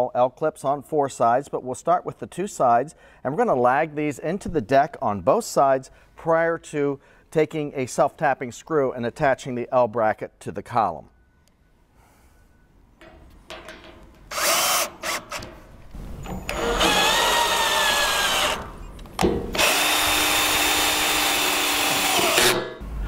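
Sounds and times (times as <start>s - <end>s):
cordless drill driving screws: 14.3s - 15.6s, 16.2s - 18.8s, 19.5s - 22.7s.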